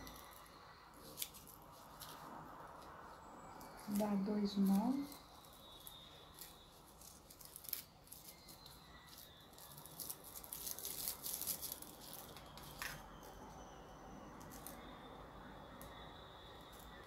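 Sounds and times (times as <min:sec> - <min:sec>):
corn husk and fabric rustling: 0:00.0 - 0:13.0.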